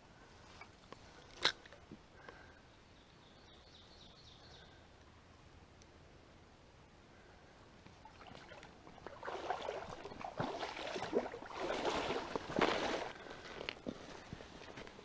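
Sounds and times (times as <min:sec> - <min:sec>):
stream water trickling: 0:07.9 - 0:15.0.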